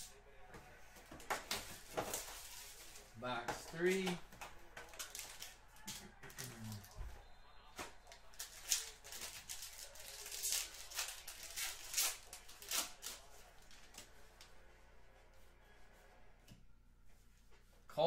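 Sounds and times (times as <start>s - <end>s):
foil pack crinkling: 8.3s - 13.8s.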